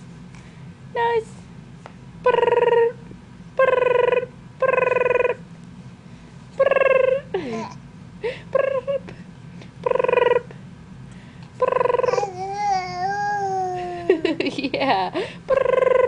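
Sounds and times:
infant cooing: 11.9 - 13.9.

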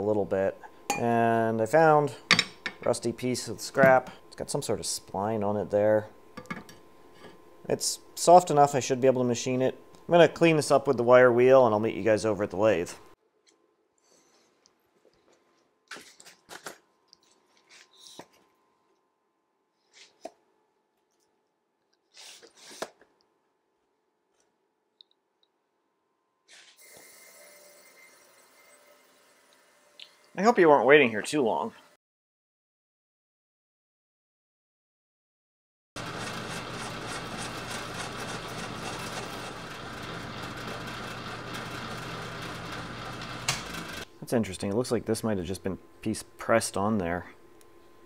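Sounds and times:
cutting tool turning steel: 36.0 - 44.1
metal lathe humming: 36.0 - 44.1.

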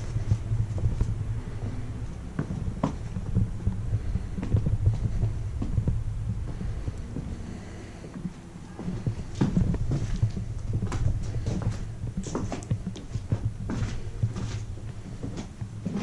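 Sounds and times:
footsteps and handling thumps: 0.0 - 7.4, 8.1 - 16.0
low rumble: 0.0 - 16.0.

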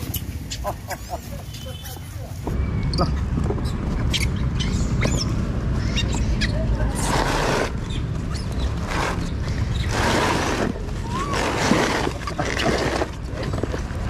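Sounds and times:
cardboard box rustling and scraping: 9.9 - 14.0.

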